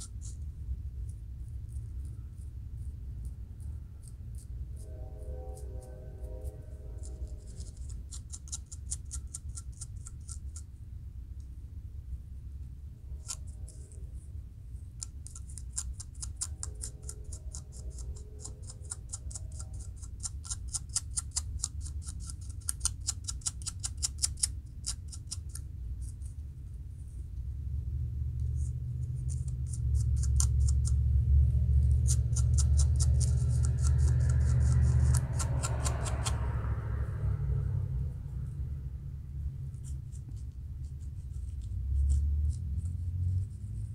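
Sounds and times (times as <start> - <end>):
metal comb scratching scalp: 0.0 - 0.5, 1.5 - 10.7, 13.1 - 14.2, 14.9 - 26.4, 28.5 - 31.0, 31.8 - 36.6, 39.6 - 43.9
low rumble: 25.8 - 43.9.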